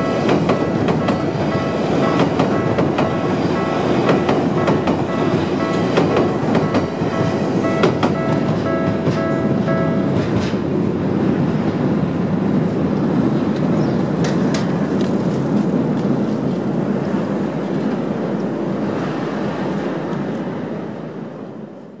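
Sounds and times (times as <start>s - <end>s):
sharp clicks of train wheels: 0.0s - 10.7s, 13.4s - 16.7s
electric train rumbling past: 0.0s - 22.0s.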